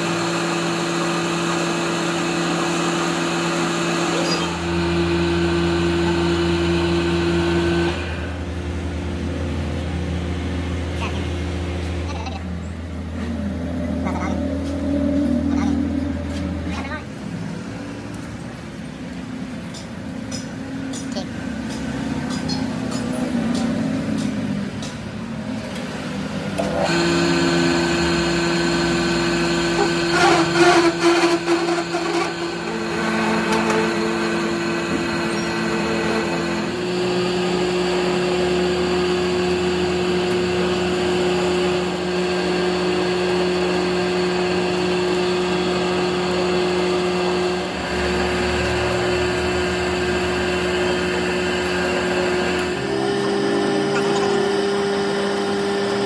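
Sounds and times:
metal lathe whining: 0.0 - 9.0, 26.6 - 56.0.

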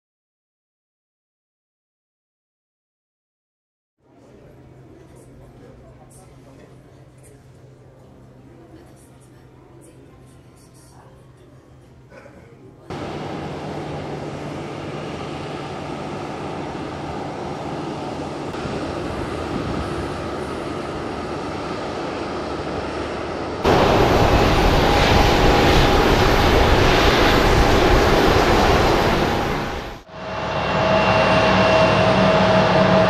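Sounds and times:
aircraft tug engine running: 12.9 - 33.0
jet engines rushing and whining: 12.9 - 33.0.

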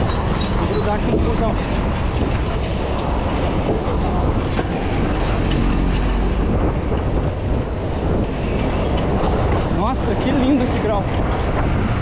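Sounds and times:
city bus rumbling: 0.0 - 12.0
wind and road noise from bicycle: 0.0 - 12.0.

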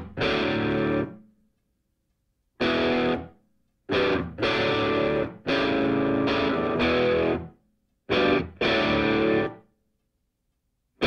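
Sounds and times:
distorted electric guitar chords: 0.0 - 1.2, 2.6 - 3.3, 3.9 - 7.5, 8.1 - 9.6.

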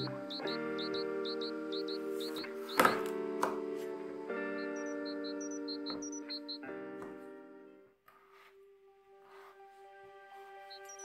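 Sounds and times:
sustained background music note: 0.0 - 7.9.

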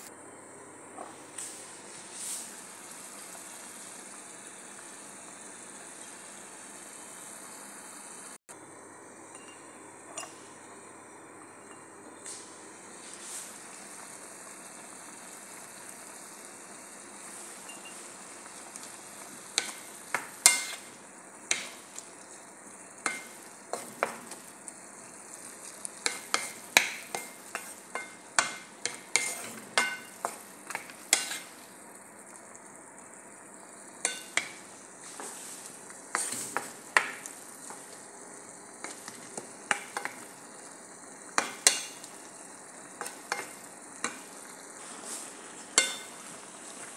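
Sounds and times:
vegetables sizzling in a frying pan: 0.0 - 46.9
wooden spatula clacking on pan: 26.1 - 31.4.

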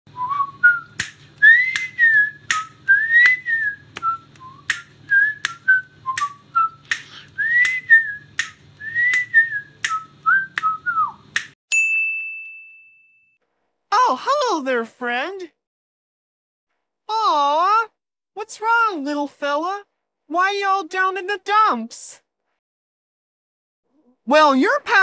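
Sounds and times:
whistled tune: 0.1 - 11.5
sharp clicks keeping time: 0.8 - 11.6.

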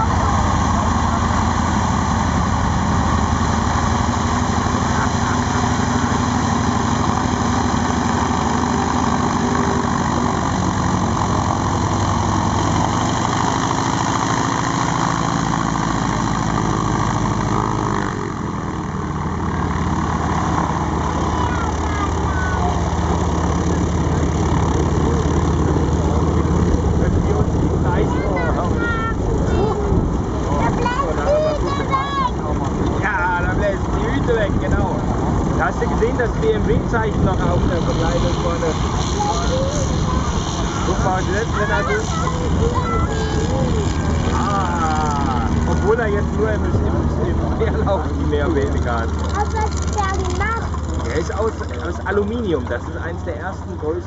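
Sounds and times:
propellers beating: 0.0 - 54.0
radial aircraft engines taxiing: 0.0 - 54.0.

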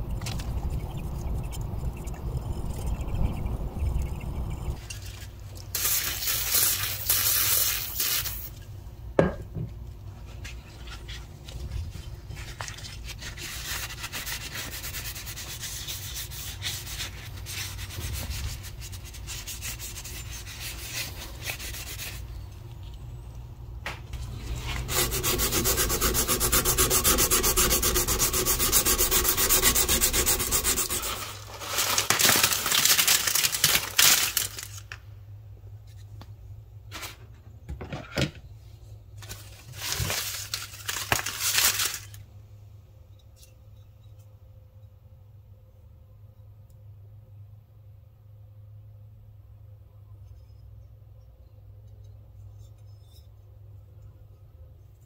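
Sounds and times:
sandpaper rubbing on steel: 13.1 - 22.3, 24.3 - 31.5.

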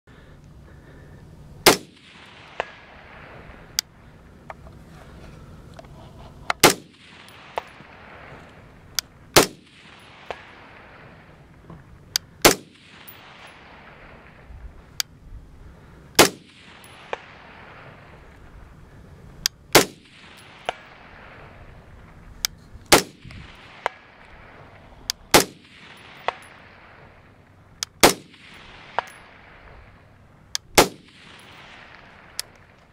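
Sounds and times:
rifle shots: 1.6 - 3.8, 6.6 - 11.6, 12.4 - 14.5, 16.2 - 18.5, 19.7 - 21.8, 22.9 - 32.9.

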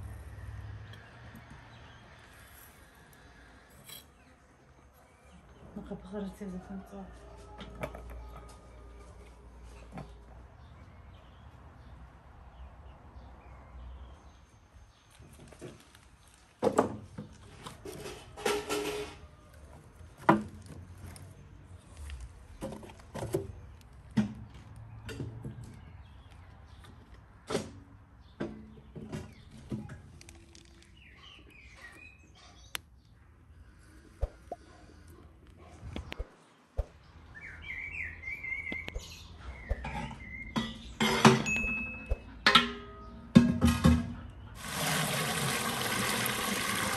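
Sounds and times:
small birds chirping: 28.2 - 41.0.

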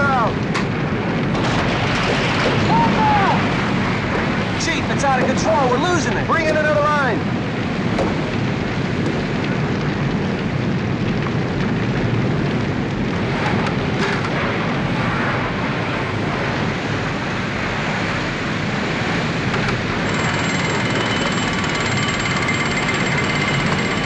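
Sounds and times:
fire crackling: 0.0 - 24.0
roar of large fire: 0.0 - 24.0.

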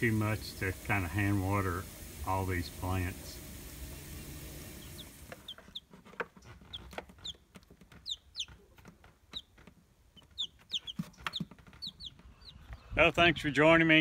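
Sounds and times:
chicks peeping: 3.9 - 13.0.

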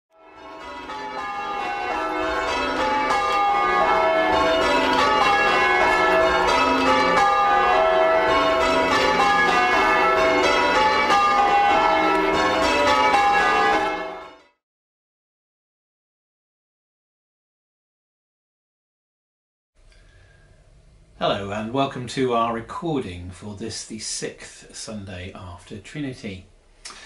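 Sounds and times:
church bells ringing: 0.2 - 14.6.

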